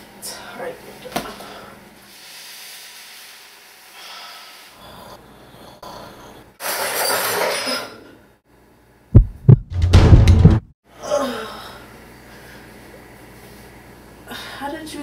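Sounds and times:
loud breathy hiss: 0:02.1 - 0:04.8.

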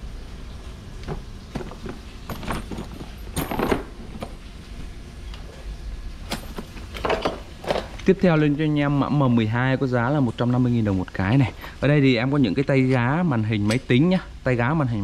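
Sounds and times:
metal parts clinking and rattling: 0:01.6 - 0:04.4, 0:06.3 - 0:07.9.

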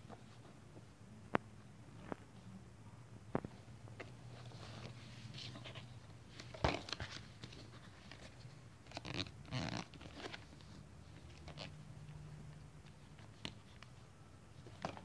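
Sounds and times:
faint low hum: 0:00.0 - 0:15.0
plastic clatter and rustling: 0:06.4 - 0:07.7.

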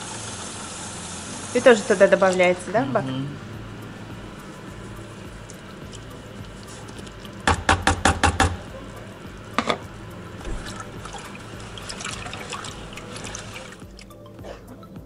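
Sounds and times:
water sloshing in a plastic bucket: 0:05.3 - 0:07.4, 0:10.4 - 0:14.1
sharp knocks: 0:07.5 - 0:08.6.

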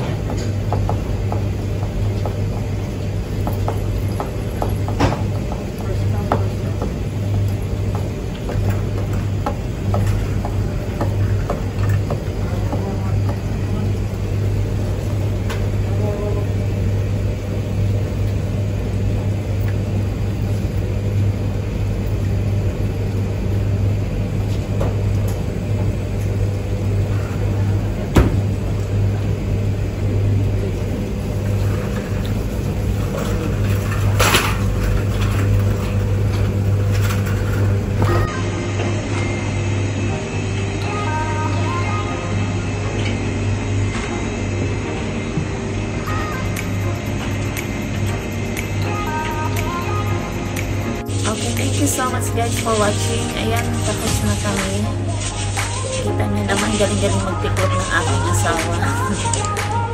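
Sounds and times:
clicks and knocks from dryer drums: 0:00.0 - 0:13.5
laundry machines humming: 0:00.0 - 0:59.9.

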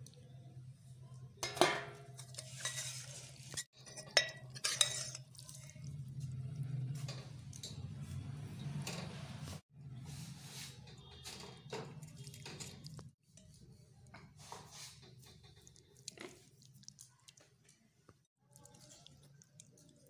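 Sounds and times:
spoon squelching through curry: 0:02.2 - 0:07.8, 0:12.0 - 0:20.0.

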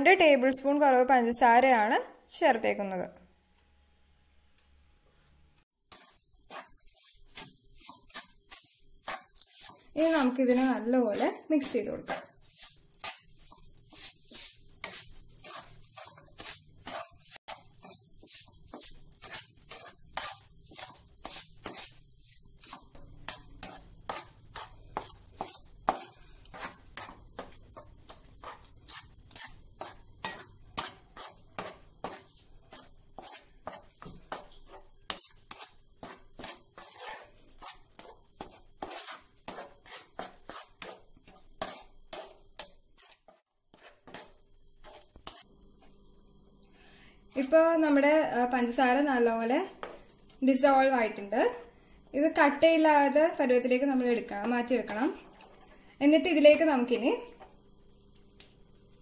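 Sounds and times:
spatula scraping frying pan: 0:05.9 - 0:45.5.

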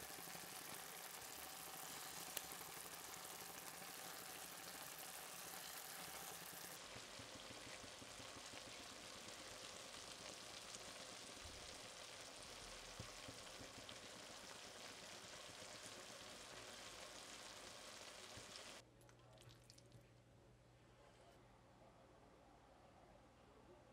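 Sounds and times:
eggs in tomato sauce sizzling: 0:00.0 - 0:18.8.

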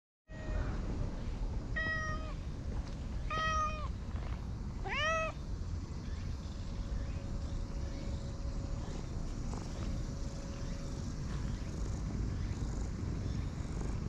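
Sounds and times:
cat meowing: 0:00.3 - 0:00.8, 0:01.8 - 0:02.4, 0:03.3 - 0:03.9, 0:04.8 - 0:05.4
steady low rumble: 0:00.3 - 0:14.0.

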